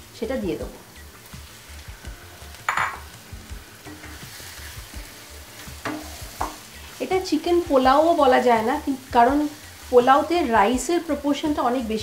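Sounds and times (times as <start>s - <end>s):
chicken sizzling in a frying pan: 0.0s - 12.0s.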